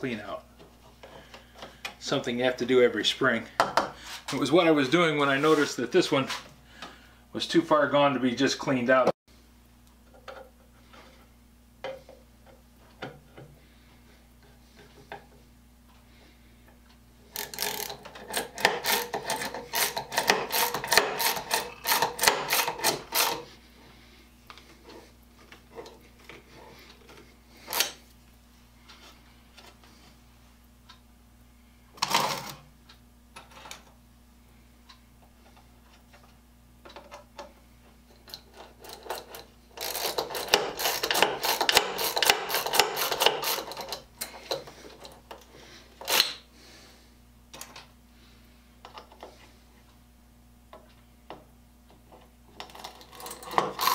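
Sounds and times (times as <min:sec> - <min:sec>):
ratchet push drill clattering: 0:17.3 - 0:23.4, 0:38.3 - 0:45.1, 0:52.6 - 0:53.9.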